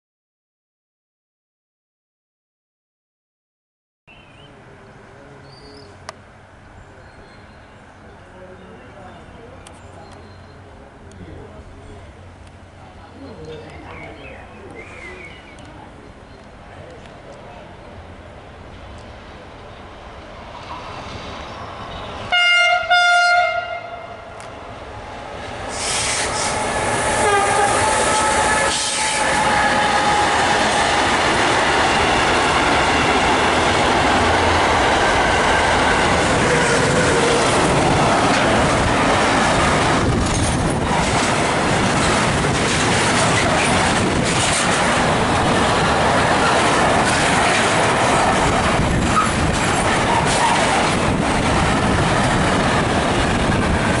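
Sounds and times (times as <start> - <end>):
locomotive horn blast: 22.3 - 24.3, 25.7 - 31.0
train wheels rumbling and clattering: 24.4 - 54.0.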